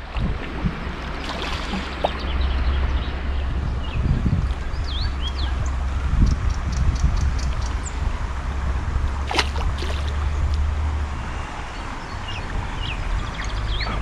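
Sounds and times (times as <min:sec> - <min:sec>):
river water splashing: 0:00.0 - 0:06.2, 0:07.0 - 0:14.0
wind rumble on microphone: 0:00.0 - 0:14.0
hand splashing in water: 0:01.2 - 0:02.2, 0:09.2 - 0:10.3
bird chirping: 0:01.8 - 0:08.0.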